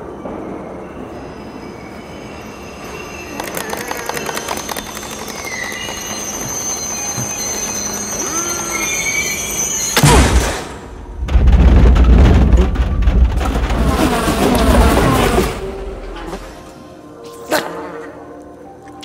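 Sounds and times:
train high whine: 0.0 - 10.0
train rumbling as it moves: 2.0 - 10.0
sudden loud burst: 10.0 - 15.8.

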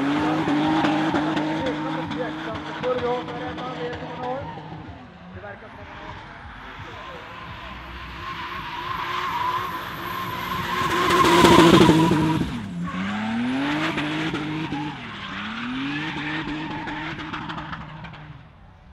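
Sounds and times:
car engine revving: 0.0 - 18.9
tyres squealing: 5.8 - 17.2.

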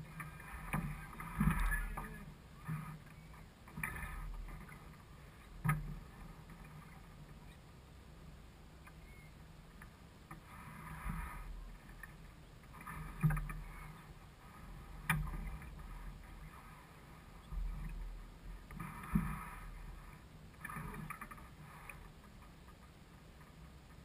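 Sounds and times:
water slapping against hull: 0.0 - 3.0, 14.6 - 20.0.

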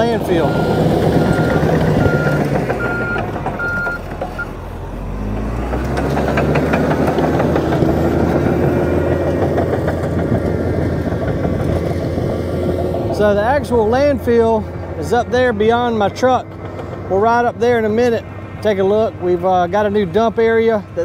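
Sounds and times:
diesel engine under load: 0.0 - 21.0
tracks clanking: 0.0 - 21.0
reverse alarm beeping: 0.4 - 4.0.

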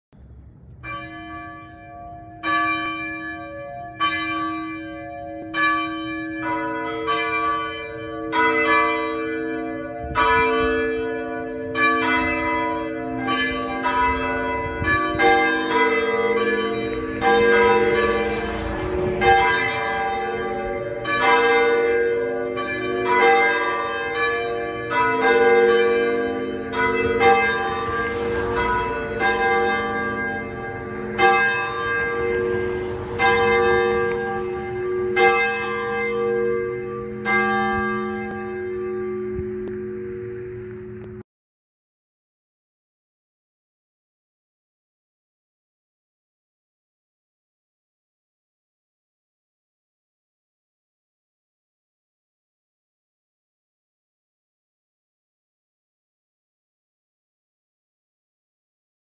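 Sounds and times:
church bells ringing: 0.6 - 41.2.

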